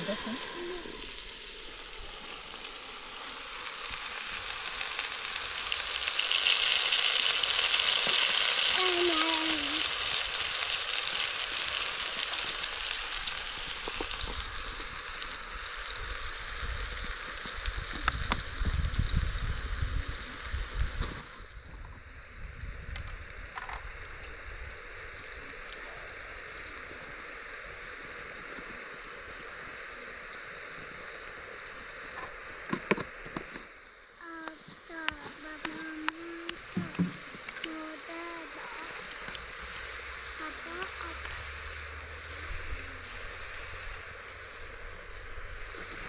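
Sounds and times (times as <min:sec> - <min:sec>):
tomatoes sizzling in oil: 0:00.0 - 0:46.0.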